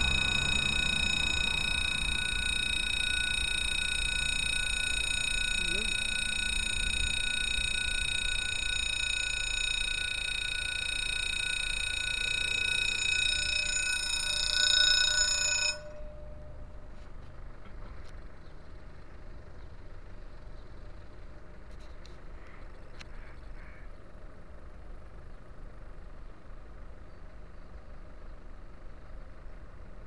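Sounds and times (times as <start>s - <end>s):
level-crossing warning bell: 0.0s - 17.6s
outdoor background: 0.0s - 30.0s.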